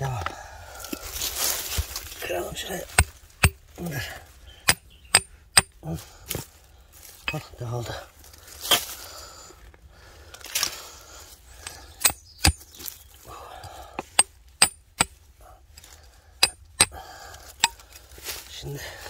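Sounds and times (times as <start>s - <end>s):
hand tool knocking stony ground: 2.9s - 3.6s, 4.7s - 5.7s, 7.2s - 7.5s, 16.4s - 17.0s, 17.6s - 17.8s.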